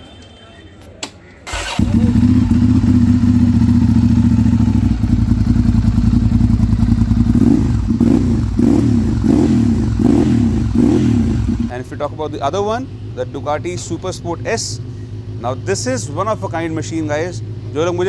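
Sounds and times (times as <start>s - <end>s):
motorcycle engine revving: 1.5s - 11.8s
motorcycle engine idling: 1.5s - 18.0s.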